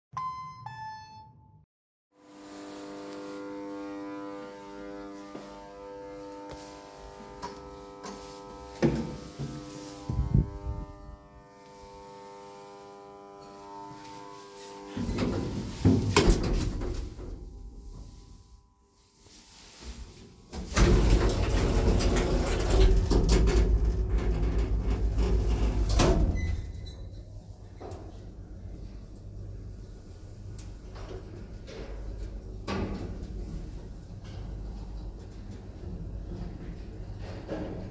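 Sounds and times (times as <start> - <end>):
two-note ding-dong chime: 0.1 - 1.6
steady hum with overtones: 2.2 - 20.5
lift doors slamming: 20.6 - 26.8.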